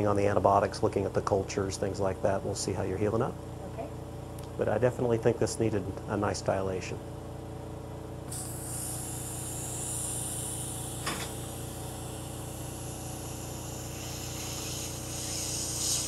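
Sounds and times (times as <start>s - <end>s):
steady low hum: 0.0s - 16.0s
suction tip hissing: 8.3s - 16.0s.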